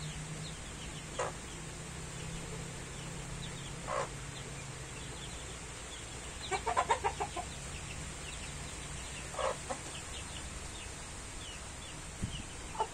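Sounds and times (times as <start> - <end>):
chicks peeping: 0.0 - 12.9
chickens clucking: 0.4 - 12.9.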